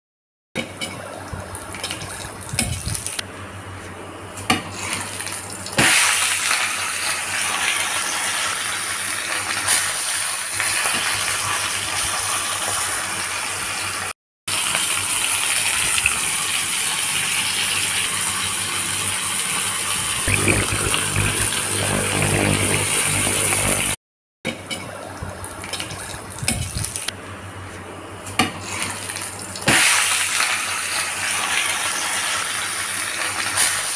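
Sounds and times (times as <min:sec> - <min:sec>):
fish frying in hot oil: 0:04.8 - 0:23.9, 0:28.6 - 0:33.9.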